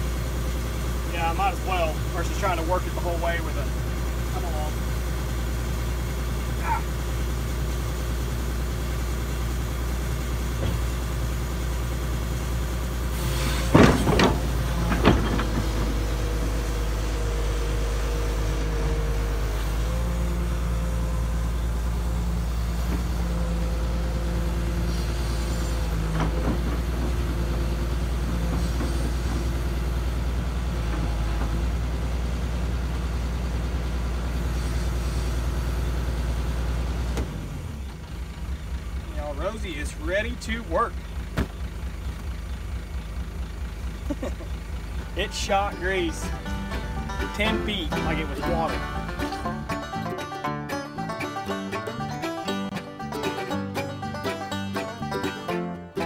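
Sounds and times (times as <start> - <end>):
excavator diesel engine running: 0.0 - 56.0
loud sharp knocks: 13.6 - 16.1.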